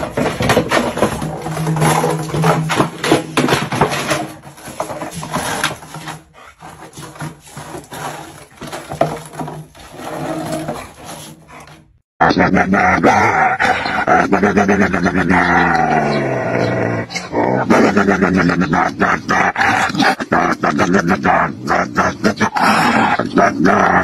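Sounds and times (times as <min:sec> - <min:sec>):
claws scraping on concrete: 0:00.0 - 0:12.0.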